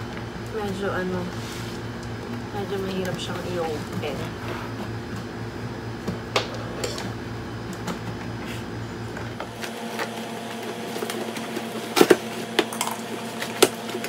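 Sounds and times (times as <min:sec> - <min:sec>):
scissors cutting packaging: 0:09.5 - 0:14.0.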